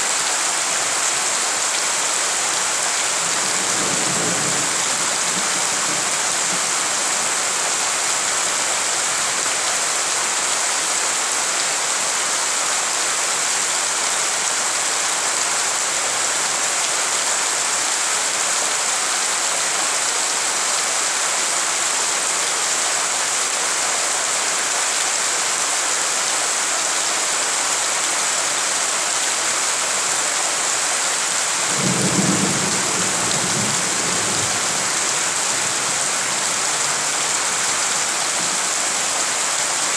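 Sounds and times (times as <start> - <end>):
heavy rain on puddles: 0.0 - 39.9.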